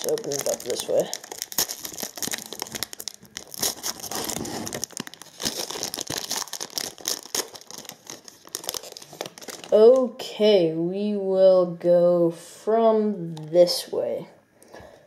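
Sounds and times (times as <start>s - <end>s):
foil wrapper crinkling: 0.0s - 10.1s.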